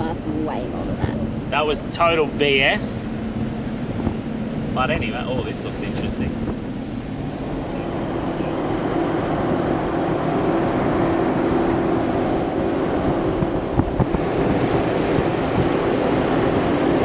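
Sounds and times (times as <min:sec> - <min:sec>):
engine and tyre drone: 0:00.0 - 0:17.0.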